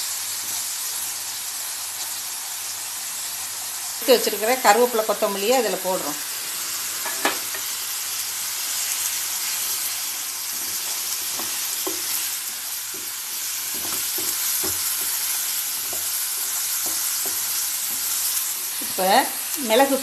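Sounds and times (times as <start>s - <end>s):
masala sizzling in hot oil: 0.0s - 20.0s
spatula knocking and scraping pan: 7.0s - 7.7s, 10.5s - 18.8s.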